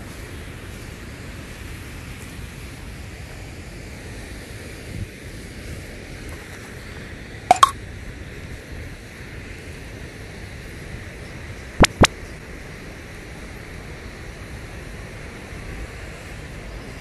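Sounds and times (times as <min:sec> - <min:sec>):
sharp clicks: 0:07.5 - 0:07.7, 0:11.8 - 0:12.1
rushing background noise: 0:11.8 - 0:12.1.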